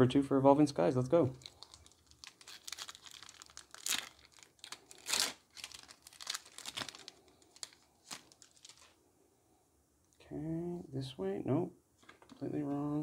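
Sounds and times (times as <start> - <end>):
foil wrapper tearing and crinkling: 1.4 - 9.0.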